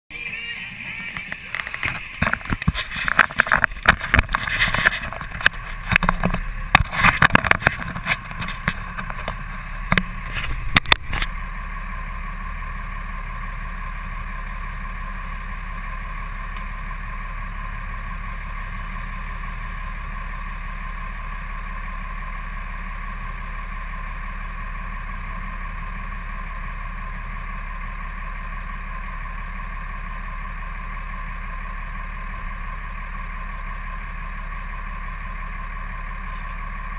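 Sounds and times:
truck engine idling: 0.1s - 36.9s
camera being handled: 1.5s - 9.4s.

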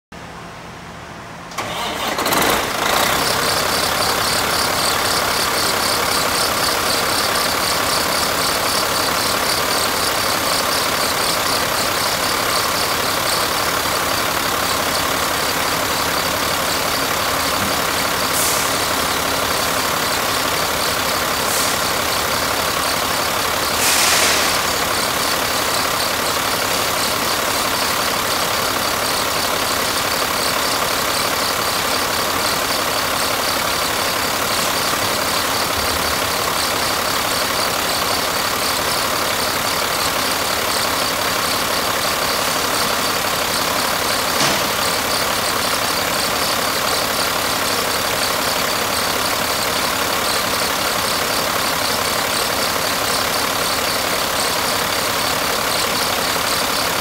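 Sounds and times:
diesel truck engine starting: 0.2s - 57.0s
engine idling with ticking: 1.6s - 57.0s.

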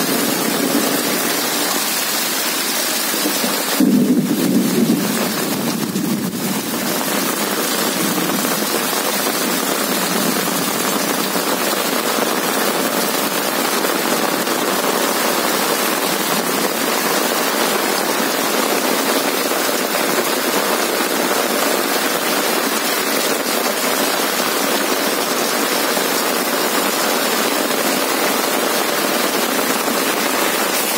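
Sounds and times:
heavy rain splashing into water: 0.0s - 30.9s.

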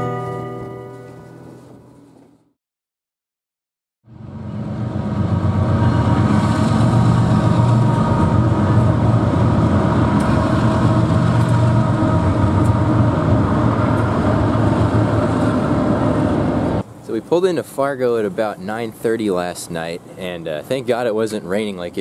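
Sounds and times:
train engine droning: 4.1s - 17.2s.

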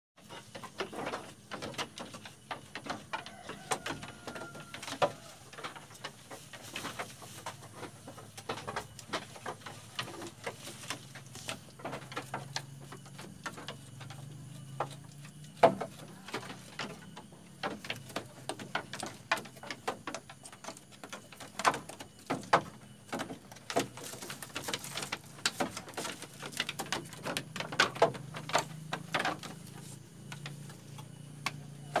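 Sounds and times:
goats clicking and knocking in pen: 0.2s - 32.0s.

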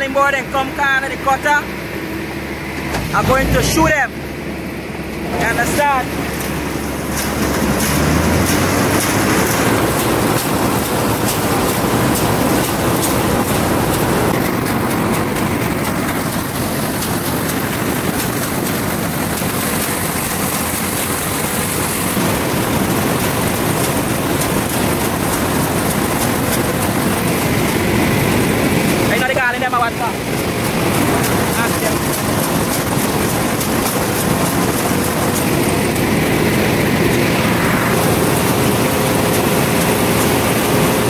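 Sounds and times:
combine harvester engine hum: 0.0s - 41.0s.

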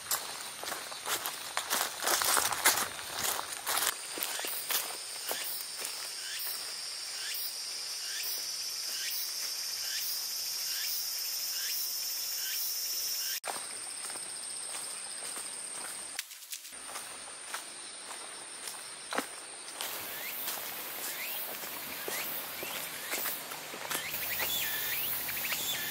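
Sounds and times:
insects buzzing: 0.0s - 25.9s.

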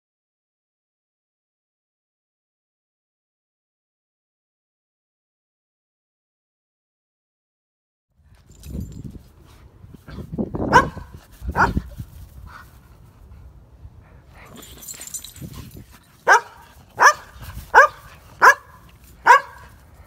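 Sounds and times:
dog barking: 10.7s - 11.9s, 16.2s - 19.7s.

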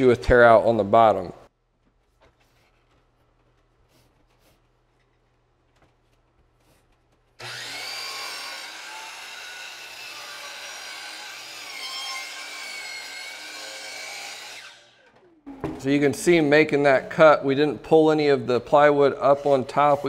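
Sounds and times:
miter saw cutting plywood: 7.4s - 15.4s.

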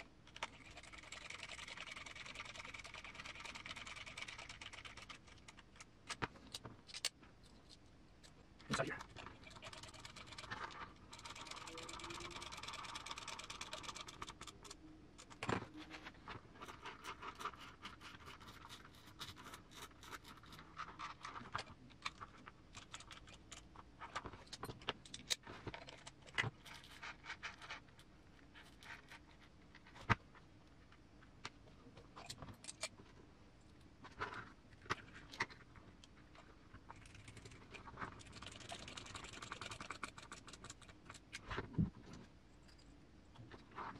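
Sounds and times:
small parts clicking and clinking: 0.0s - 15.6s, 16.6s - 29.3s.

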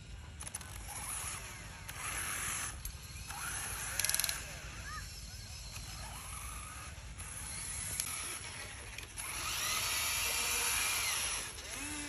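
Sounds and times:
electric motors whining: 0.0s - 12.0s
rattle of gear clicks: 0.4s - 4.5s.

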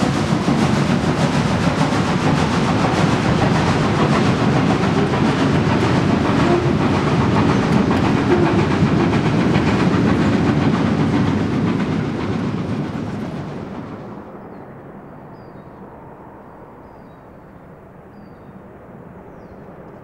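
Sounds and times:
train wheels clattering on rails: 0.0s - 14.4s.

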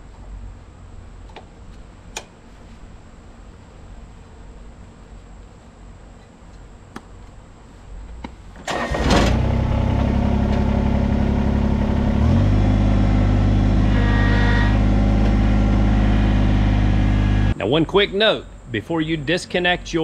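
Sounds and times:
diesel engine cranking and idling: 8.6s - 17.6s.

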